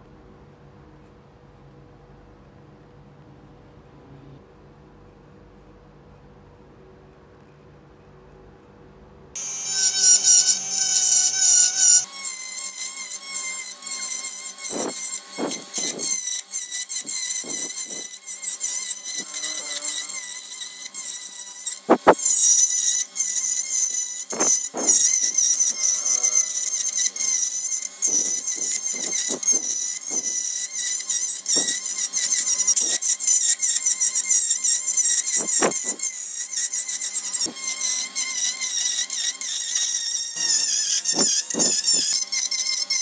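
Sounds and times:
wood lathe tool scraping whine: 0:09.4 - 0:43.0.

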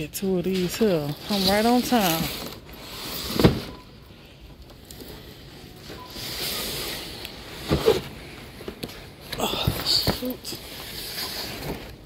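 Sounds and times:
cardboard boxes scraping: 0:00.8 - 0:03.8.

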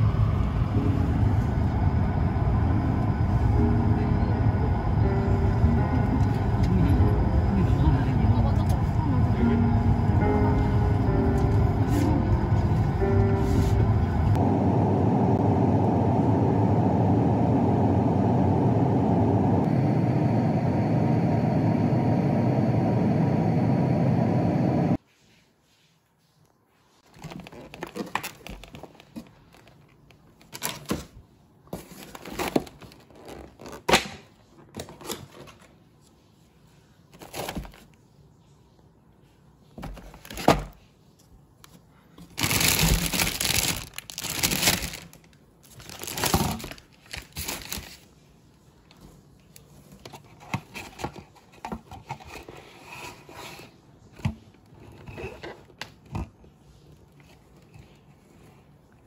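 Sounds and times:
plastic bags crinkling: 0:42.3 - 0:48.1.

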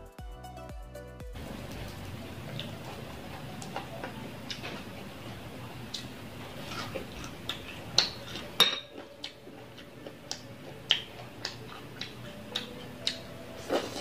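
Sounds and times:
chewing and lip smacks: 0:05.9 - 0:14.0
dish clinking: 0:08.0 - 0:09.0.

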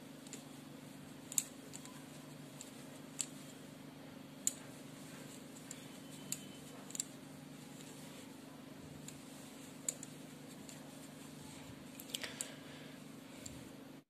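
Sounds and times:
steady low hum: 0:00.0 - 0:14.0
crochet hook clicking: 0:01.3 - 0:02.0, 0:09.8 - 0:10.1.

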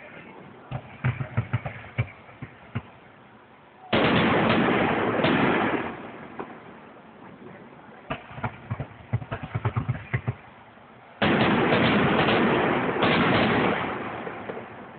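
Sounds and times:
crackling firework pops: 0:00.7 - 0:03.0, 0:08.1 - 0:10.4.

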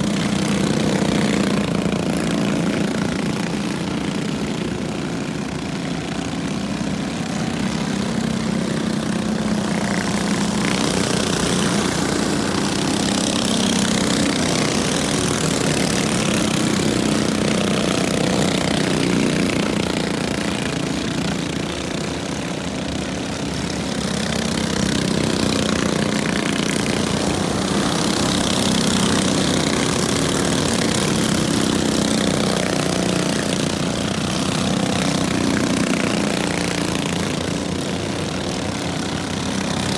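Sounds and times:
small race car engines droning: 0:00.0 - 0:39.9.

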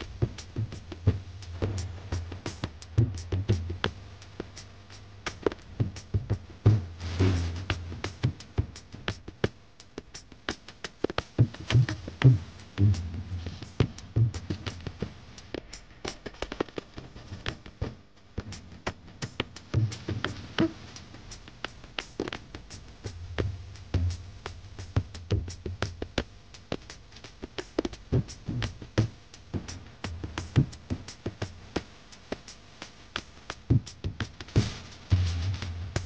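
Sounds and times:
low bass notes: 0:00.0 - 0:04.0, 0:06.8 - 0:08.2, 0:11.7 - 0:15.1, 0:22.8 - 0:26.0
drum machine percussion: 0:00.0 - 0:36.0.

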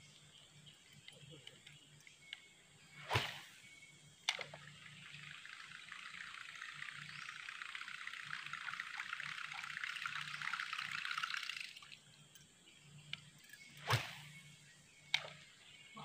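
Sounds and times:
fishing rod and line swishing: 0:02.9 - 0:03.7, 0:13.6 - 0:14.4
lure sputtering across water: 0:04.9 - 0:12.0.

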